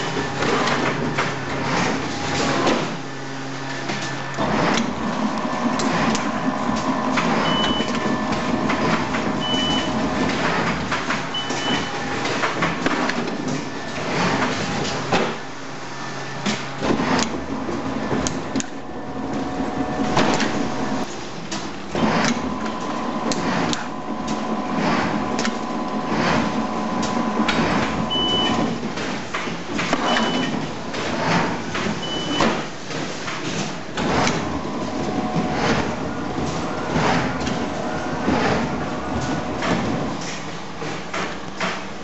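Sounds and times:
machine hum: 0:00.0 - 0:42.0.

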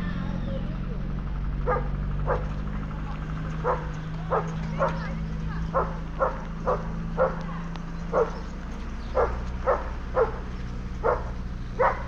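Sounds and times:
steady low hum: 0:00.0 - 0:12.0
dog barking: 0:01.6 - 0:02.6, 0:03.6 - 0:05.1, 0:05.7 - 0:07.5, 0:08.1 - 0:08.4, 0:09.1 - 0:12.0.

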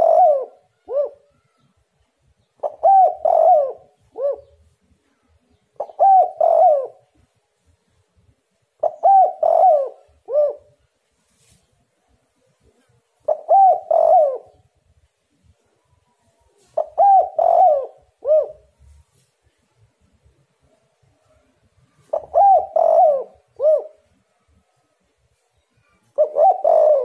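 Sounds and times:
dove cooing: 0:00.0 - 0:01.6, 0:02.5 - 0:04.8, 0:05.8 - 0:07.2, 0:08.8 - 0:10.8, 0:13.2 - 0:14.7, 0:16.5 - 0:19.0, 0:21.8 - 0:24.2, 0:25.9 - 0:27.0.

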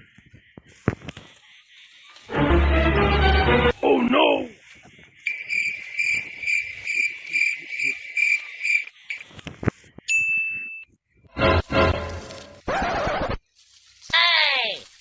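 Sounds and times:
cricket chirping: 0:00.0 - 0:02.4, 0:04.6 - 0:09.4
high ding-like tone: 0:10.1 - 0:10.9.

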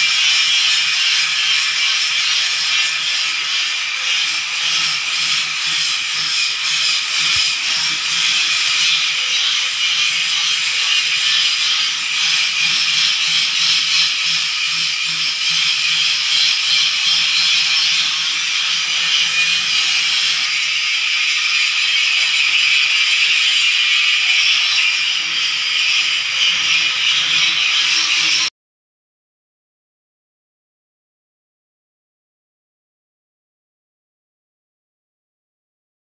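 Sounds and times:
angle grinder grinding metal: 0:00.0 - 0:28.5.

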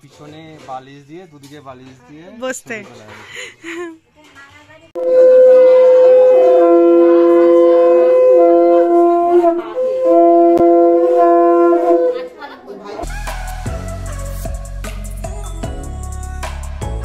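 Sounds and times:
conch shells blown: 0:05.0 - 0:12.2
background music with a beat: 0:13.0 - 0:17.0.

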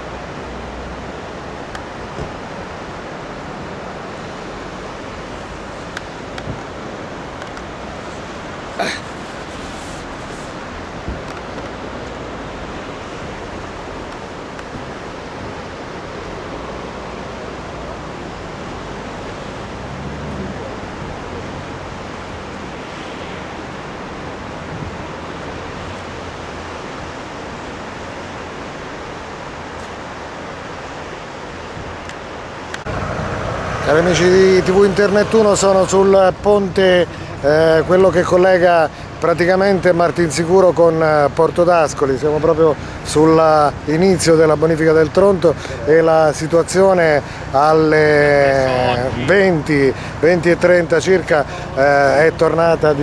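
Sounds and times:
river rushing: 0:00.0 - 0:53.0.

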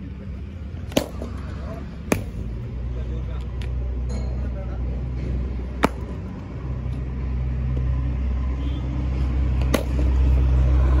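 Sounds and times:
cricket bat hitting ball: 0:00.8 - 0:02.4, 0:05.8 - 0:06.2, 0:09.6 - 0:10.1.

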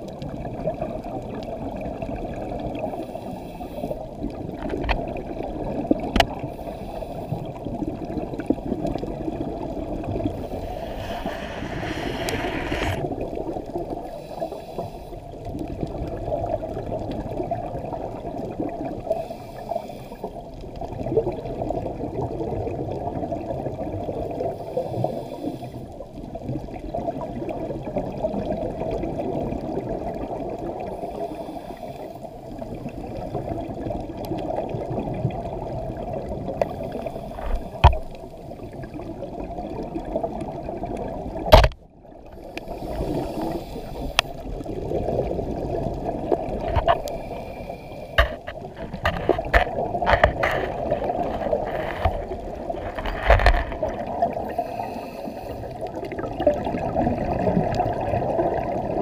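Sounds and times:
muffled underwater rushing: 0:00.0 - 0:59.0
bright water rush: 0:08.4 - 0:15.2, 0:36.2 - 0:39.4, 0:40.0 - 0:59.0.

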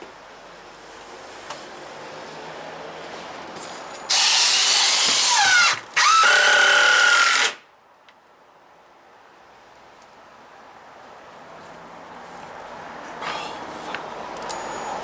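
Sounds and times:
power drill drilling into wood: 0:04.1 - 0:07.6.

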